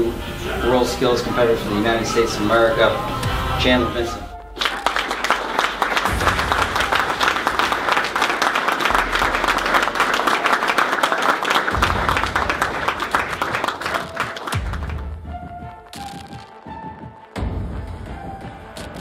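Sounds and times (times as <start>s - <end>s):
people applauding: 4.4s - 15.2s.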